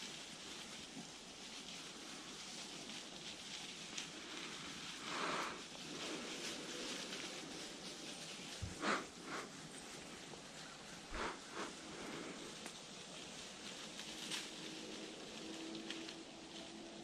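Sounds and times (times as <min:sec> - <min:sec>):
footsteps crunching dry leaves: 0:00.0 - 0:17.0
brushing swish: 0:04.4 - 0:12.6.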